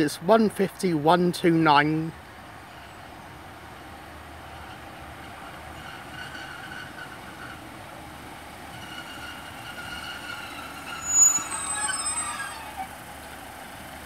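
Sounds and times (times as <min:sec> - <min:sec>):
diesel train drawing in: 0:00.0 - 0:14.0
train brakes squealing: 0:04.5 - 0:07.7, 0:08.7 - 0:12.9.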